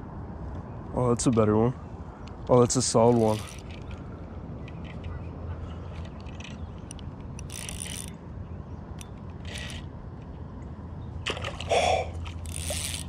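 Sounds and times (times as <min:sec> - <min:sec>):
spinning reel cranking: 0:03.1 - 0:03.8, 0:07.4 - 0:08.1, 0:09.4 - 0:09.8, 0:12.4 - 0:13.0.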